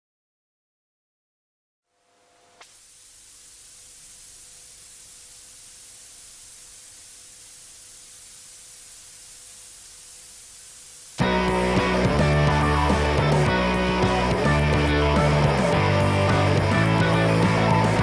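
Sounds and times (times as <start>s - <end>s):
faint steady tone: 1.9s - 11.2s
static hiss: 1.9s - 18.0s.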